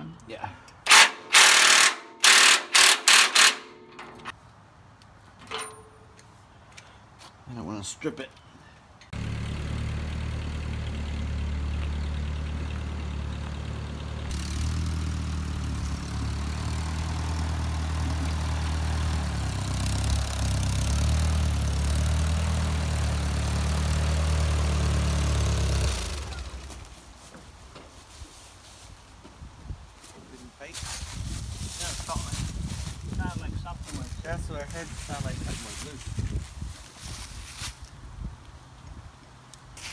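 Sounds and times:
machine winding down: 0:00.9 - 0:04.3.

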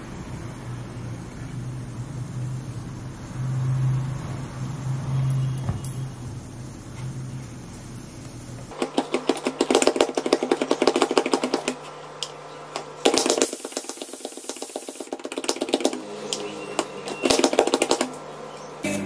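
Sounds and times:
vegetable chopper clattering clicks: 0:08.7 - 0:16.4, 0:17.1 - 0:18.2
short hiss: 0:13.2 - 0:15.2.

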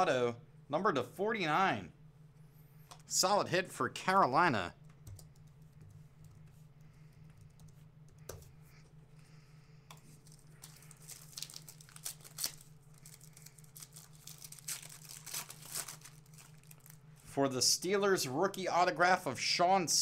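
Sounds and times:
steady low hum: 0:00.0 - 0:20.0
wrapper tearing and crinkling: 0:10.2 - 0:17.0.

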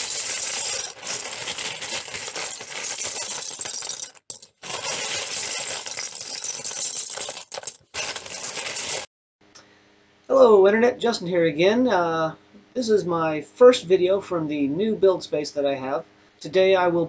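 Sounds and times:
plastic bricks clattering: 0:00.0 - 0:09.1.

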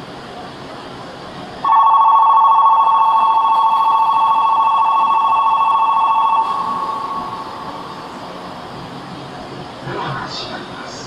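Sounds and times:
electronic departure bell warbling: 0:01.6 - 0:08.2.

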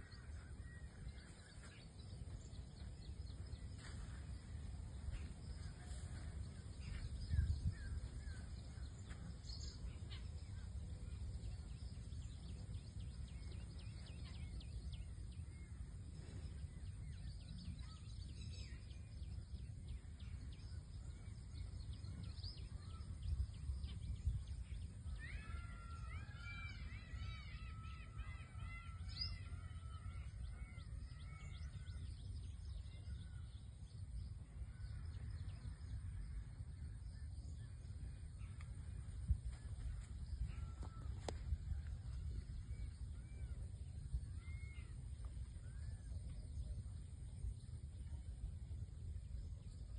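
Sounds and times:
low outdoor rumble: 0:00.0 - 0:49.9.

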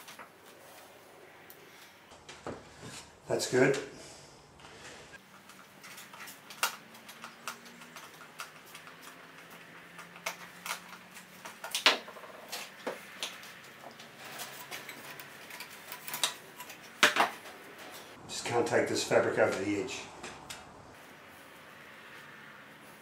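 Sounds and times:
plastic parts clicking and knocking: 0:05.3 - 0:17.5.

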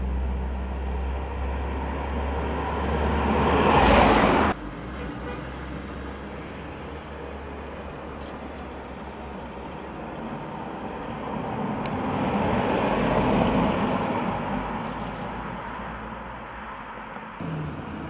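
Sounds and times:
car driving past: 0:00.0 - 0:04.6, 0:17.4 - 0:18.0.

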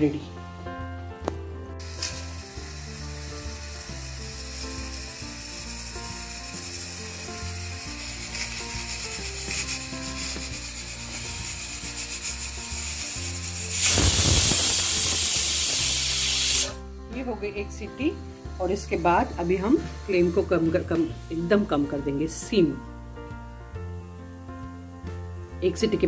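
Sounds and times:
pressure cooker steam rush: 0:01.8 - 0:16.8, 0:18.0 - 0:21.0.

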